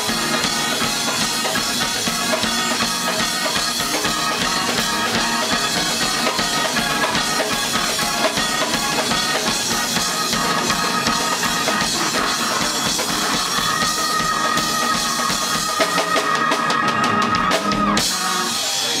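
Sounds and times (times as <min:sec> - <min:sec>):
live band playing: 0:00.0 - 0:19.0
rapid drum and cymbal hits: 0:00.0 - 0:19.0.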